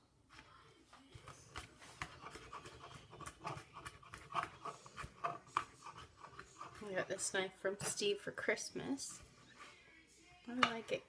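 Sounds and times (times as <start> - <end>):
knife chopping on cutting board: 1.5 - 7.2.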